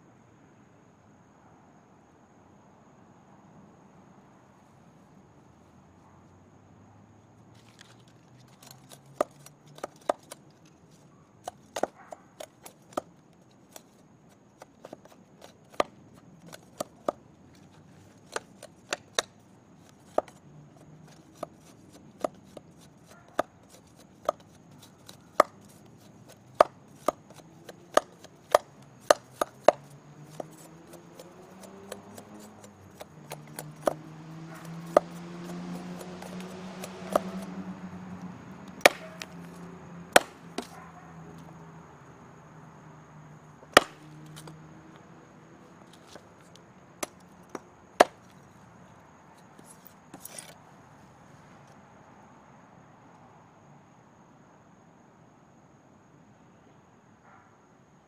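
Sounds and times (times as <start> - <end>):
machete chopping wood: 8.5 - 10.8, 11.4 - 40.8, 43.6 - 44.8, 45.8 - 48.4.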